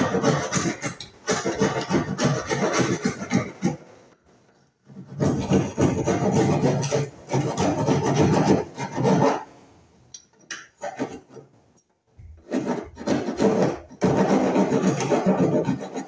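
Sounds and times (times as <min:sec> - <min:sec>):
hand file rasping on wood: 0:00.0 - 0:03.8, 0:04.9 - 0:09.5, 0:10.8 - 0:11.4, 0:12.3 - 0:16.0
scattered scrapes: 0:00.0 - 0:04.0, 0:04.8 - 0:09.6, 0:10.7 - 0:11.5, 0:12.2 - 0:16.0.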